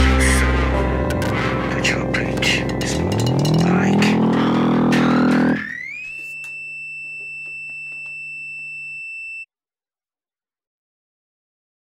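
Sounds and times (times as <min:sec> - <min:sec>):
band music: 0:00.0 - 0:05.8
high gliding tone: 0:00.4 - 0:09.4.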